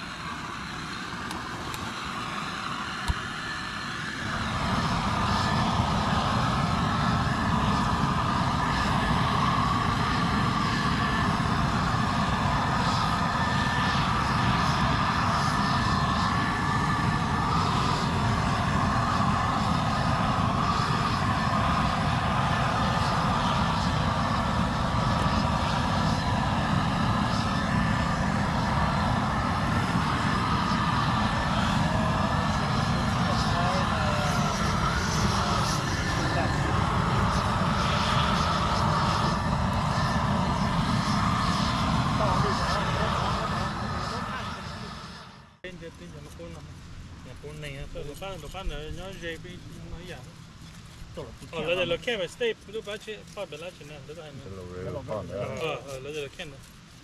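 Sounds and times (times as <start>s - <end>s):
propane torch flame rushing: 0.7s - 45.6s.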